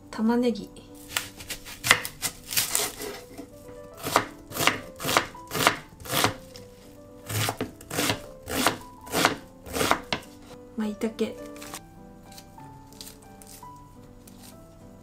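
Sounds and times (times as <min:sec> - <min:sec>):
knife chopping on wooden board: 0:01.1 - 0:06.6, 0:07.3 - 0:10.6.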